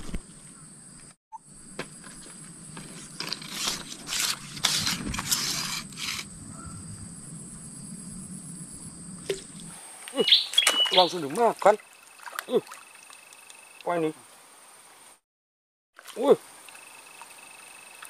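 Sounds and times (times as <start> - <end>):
rustling and scraping: 0.0 - 0.5, 1.8 - 6.3.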